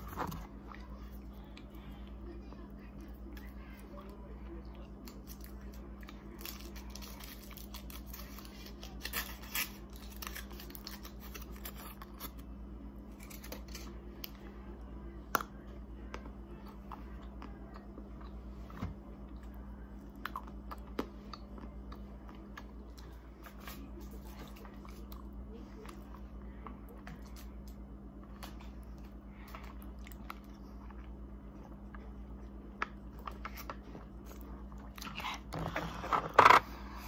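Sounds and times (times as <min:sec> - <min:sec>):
sweets crackling and crunching: 0:04.8 - 0:14.4.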